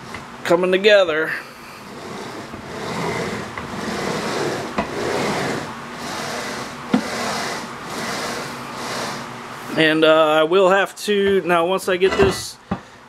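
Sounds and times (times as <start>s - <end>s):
bearing blocks rolling on rails: 1.9s - 9.2s.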